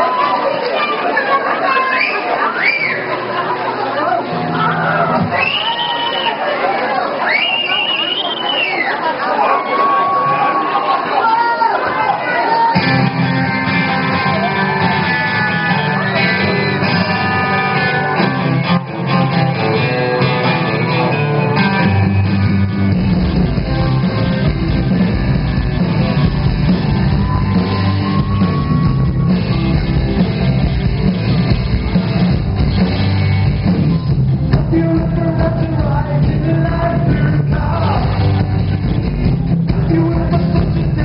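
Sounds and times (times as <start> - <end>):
rock band playing live: 2.9 - 5.9, 12.3 - 41.0
electric guitar: 12.7 - 41.0.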